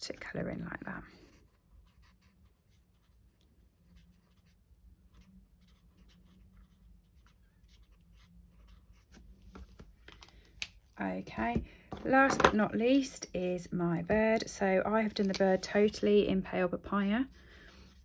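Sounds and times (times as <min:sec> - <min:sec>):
marker scratching on cardstock: 0:01.2 - 0:09.2.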